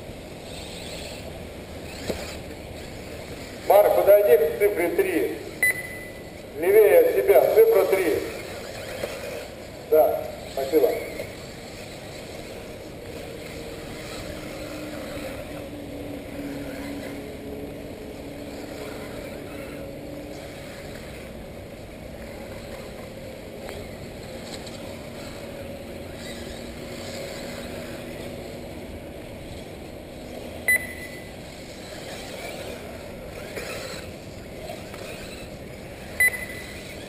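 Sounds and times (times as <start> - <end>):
rc car motor whines: 0.2 - 6.5, 7.2 - 37.0.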